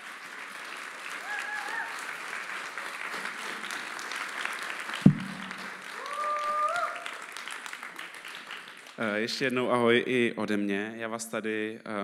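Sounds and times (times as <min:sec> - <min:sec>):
audience applauding: 0:00.0 - 0:09.2
loud thump: 0:05.0 - 0:05.7.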